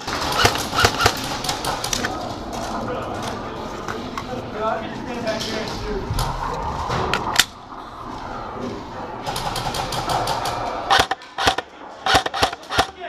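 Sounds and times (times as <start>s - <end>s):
airsoft gun shots: 0.2s - 1.3s, 10.9s - 13.0s.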